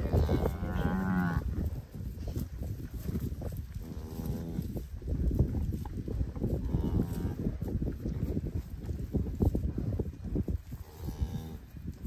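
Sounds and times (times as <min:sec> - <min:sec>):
cattle mooing: 0:00.0 - 0:01.5.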